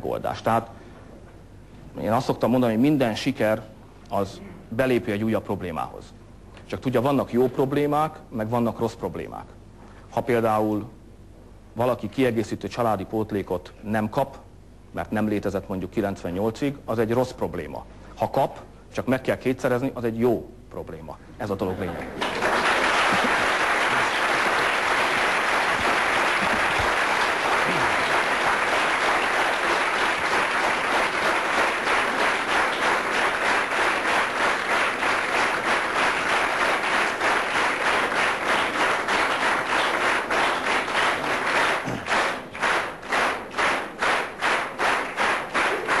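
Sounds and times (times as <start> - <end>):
audience applauding: 21.9 - 46.0
rhythmic clapping in unison: 22.1 - 46.0.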